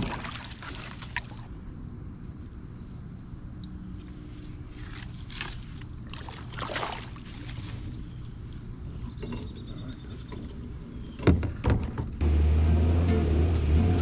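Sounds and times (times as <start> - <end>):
water splashing around a kayak: 0.0 - 1.5, 4.9 - 7.7.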